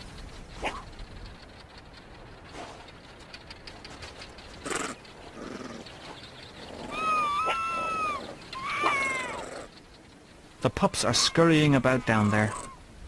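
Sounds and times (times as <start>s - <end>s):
fox calling: 4.4s - 12.9s.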